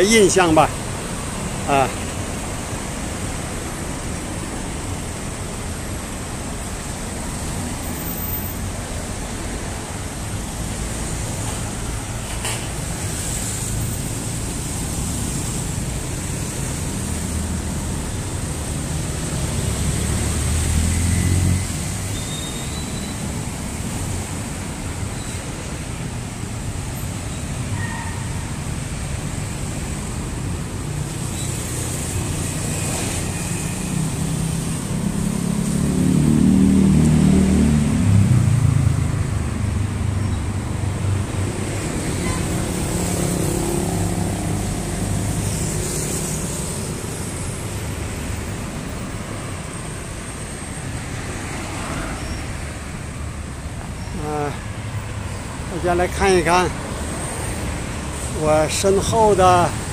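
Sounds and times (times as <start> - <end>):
road traffic: 0.0 - 59.9
vehicle passing close: 34.2 - 46.5.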